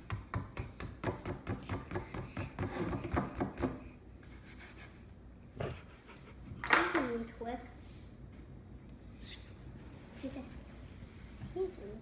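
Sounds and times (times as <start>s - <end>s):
paintbrush rubbing on canvas: 9.0s - 11.4s.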